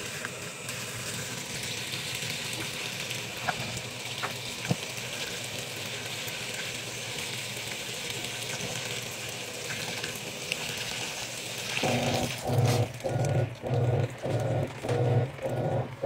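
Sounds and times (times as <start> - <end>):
water pouring into washing machine: 8.7 - 16.0
low rhythmic pulsing: 11.8 - 16.0.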